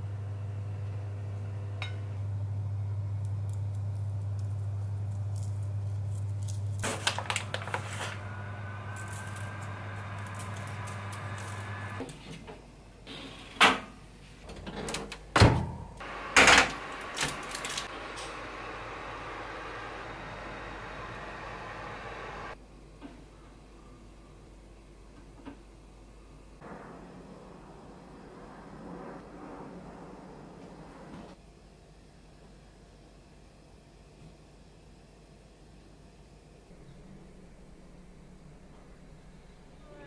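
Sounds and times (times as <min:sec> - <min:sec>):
steady low hum: 0:00.0 - 0:12.1, 0:36.4 - 0:40.0.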